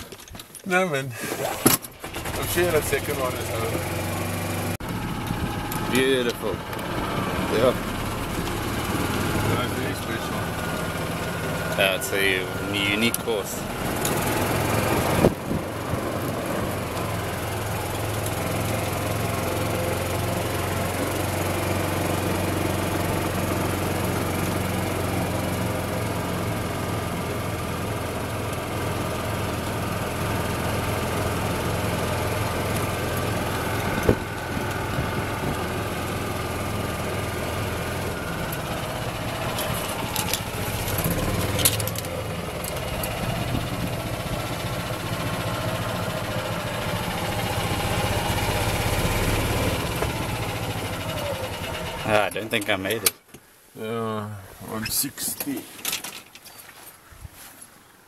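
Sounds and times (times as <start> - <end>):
golf cart engine running: 1.2 - 53.1
rattling clicks: 39.5 - 43.3.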